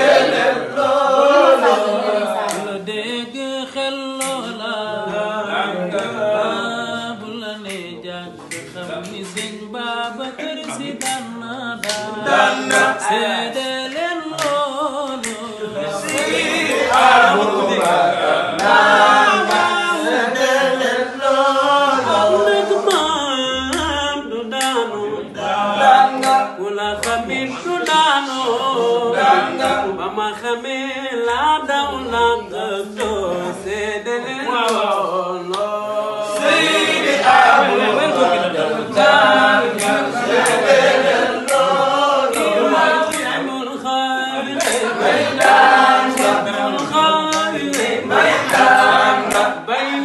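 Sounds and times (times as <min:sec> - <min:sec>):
men singing without instruments: 0:00.0 - 0:50.0
hand claps: 0:02.4 - 0:02.8, 0:04.1 - 0:04.7, 0:06.0 - 0:06.2, 0:07.6 - 0:20.6, 0:22.1 - 0:25.0, 0:25.8 - 0:28.2, 0:34.6 - 0:38.3, 0:39.0 - 0:43.8, 0:44.5 - 0:50.0.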